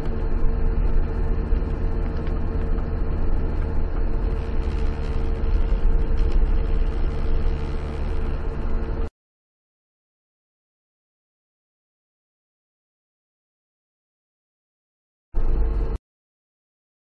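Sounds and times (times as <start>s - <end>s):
car engine and tyre rumble: 0.0s - 9.1s, 15.4s - 16.0s
faint steady hum: 0.0s - 9.1s, 15.4s - 16.0s.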